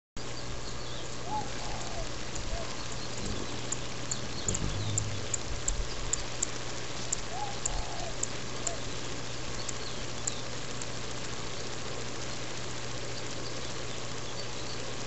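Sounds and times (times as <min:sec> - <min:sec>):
faint chirp: 0:00.2 - 0:06.6
low hum: 0:00.2 - 0:09.8
crackling microphone hiss: 0:00.2 - 0:15.0
faint ticks: 0:09.6 - 0:11.0.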